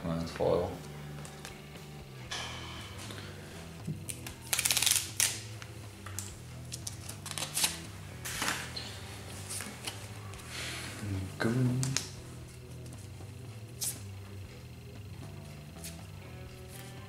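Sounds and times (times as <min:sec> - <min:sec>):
soft background music: 0:00.0 - 0:17.0
cards clicking and snapping: 0:04.1 - 0:08.7, 0:11.7 - 0:12.2.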